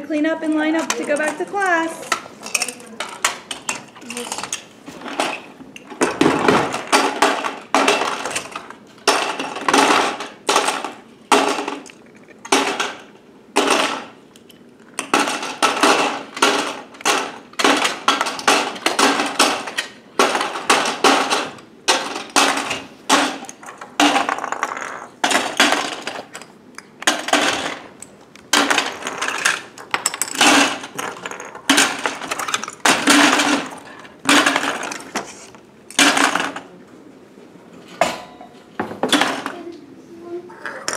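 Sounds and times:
plastic pieces clattering into tub: 0:00.6 - 0:14.2, 0:14.9 - 0:26.4, 0:27.0 - 0:36.7, 0:39.0 - 0:39.7.

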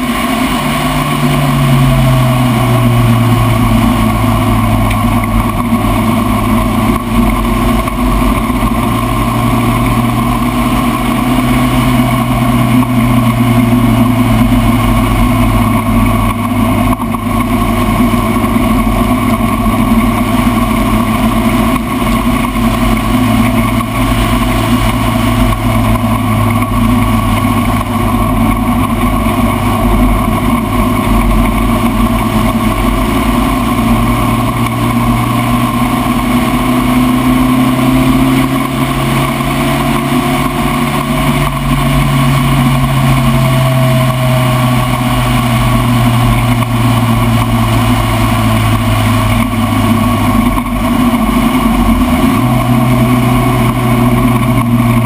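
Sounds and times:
race car engine at speed: 0:00.0 - 0:55.0
wind and road noise: 0:00.0 - 0:55.0.

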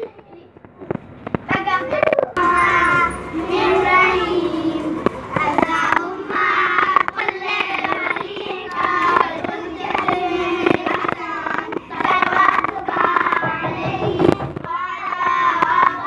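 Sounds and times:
children singing: 0:02.4 - 0:16.0
hand claps: 0:04.8 - 0:16.0.

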